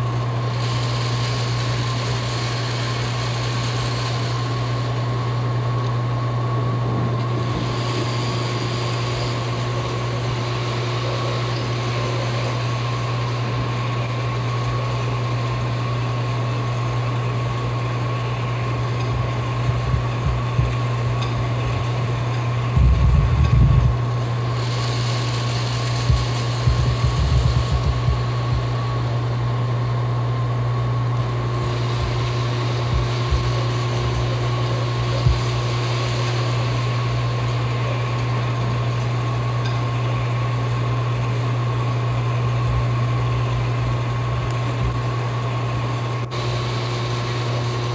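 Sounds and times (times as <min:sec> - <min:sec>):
mechanical hum: 0:00.0 - 0:47.9
thin whine: 0:00.0 - 0:47.9
low knocking rumbles: 0:19.7 - 0:21.4, 0:22.7 - 0:24.0, 0:26.1 - 0:28.7.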